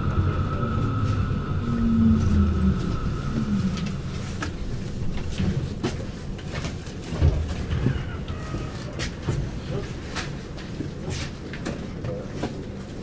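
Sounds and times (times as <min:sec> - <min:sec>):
low rumble: 0:00.0 - 0:09.8
tram electrical whine: 0:00.0 - 0:11.0.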